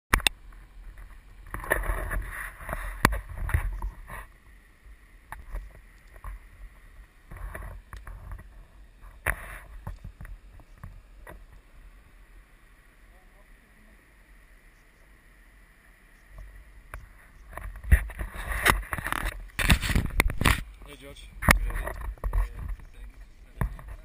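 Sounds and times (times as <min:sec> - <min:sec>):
camera handling knocks and rubbing: 0:17.5 - 0:20.6, 0:21.4 - 0:23.0.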